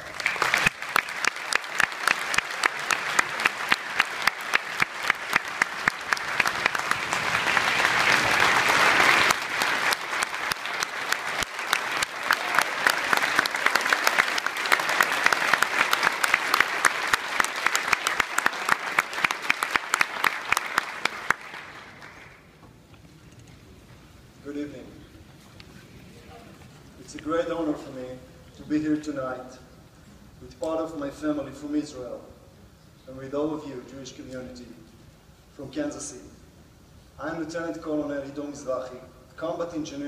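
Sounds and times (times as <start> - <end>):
close sharp hand claps: 0.0 - 22.4
large audience applauding: 0.0 - 22.5.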